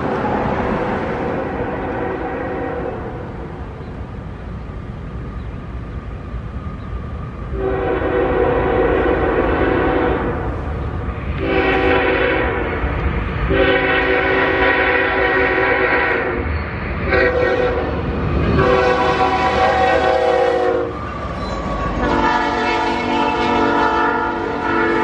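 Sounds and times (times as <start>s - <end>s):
train rumbling: 0.0s - 25.0s
locomotive air horn blasts: 1.4s - 3.2s, 7.5s - 10.5s, 11.4s - 18.0s, 18.6s - 21.0s, 22.0s - 25.0s.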